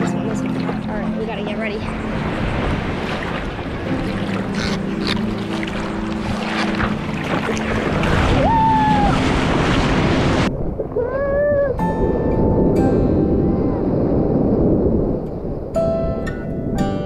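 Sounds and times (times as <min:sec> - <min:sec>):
water splashing: 0:00.0 - 0:12.1
ocean surf: 0:00.0 - 0:17.0
wind on microphone: 0:00.0 - 0:17.0.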